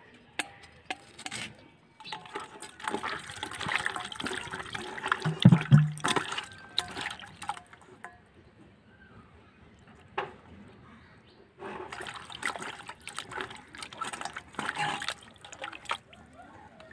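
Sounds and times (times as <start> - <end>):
water sloshing in steel bowl: 2.0 - 8.2, 11.6 - 16.9.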